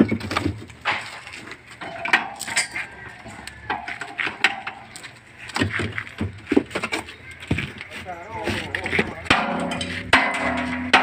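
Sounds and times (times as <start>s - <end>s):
metallic clanks of tools on hub: 1.8s - 5.1s, 9.2s - 11.0s.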